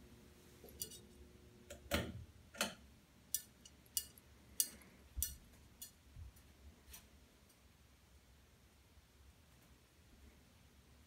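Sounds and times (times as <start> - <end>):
ceiling fan ticking: 3.2 - 6.5.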